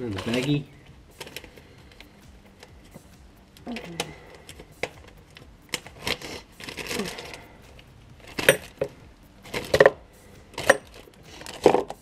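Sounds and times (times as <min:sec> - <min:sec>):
plastic bag rustling: 0:00.0 - 0:03.1, 0:03.7 - 0:12.0
small metal parts clinking: 0:03.7 - 0:12.0.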